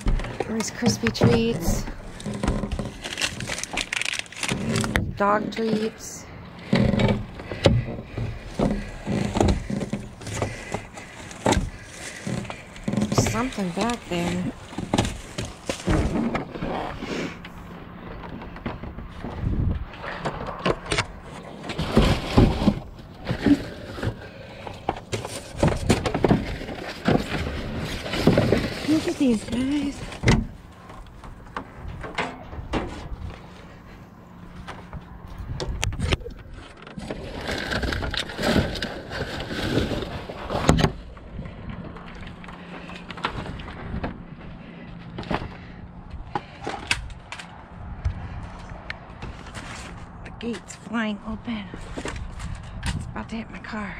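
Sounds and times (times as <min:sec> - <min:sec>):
plastic bags crinkling: 0:00.0 - 0:05.2
cardboard shifting: 0:00.0 - 0:06.0, 0:06.6 - 0:17.4, 0:20.0 - 0:35.0, 0:35.9 - 0:41.1.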